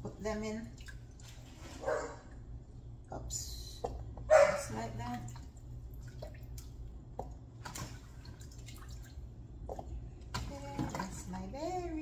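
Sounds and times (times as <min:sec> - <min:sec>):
low steady hum: 0:00.0 - 0:12.0
wet drips: 0:00.6 - 0:01.5, 0:05.0 - 0:10.5.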